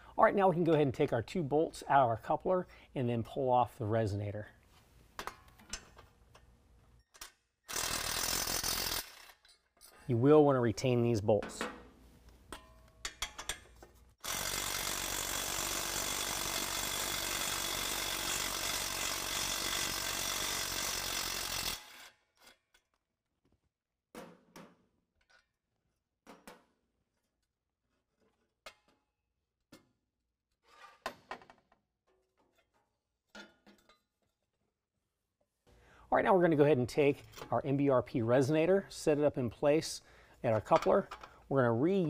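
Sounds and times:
impact driver running: 7.7 - 9.3, 14.2 - 22.1.

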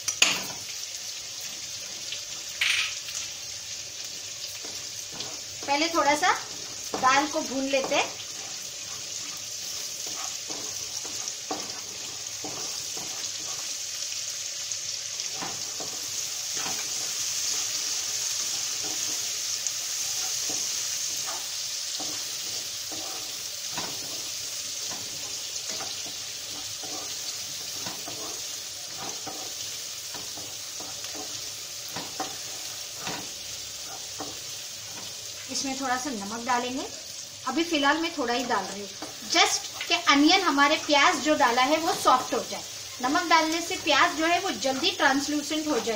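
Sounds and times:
food sizzling in hot oil: 0.0 - 45.9
wooden spatula scraping pan: 4.5 - 13.8, 15.2 - 19.3, 20.0 - 35.2.

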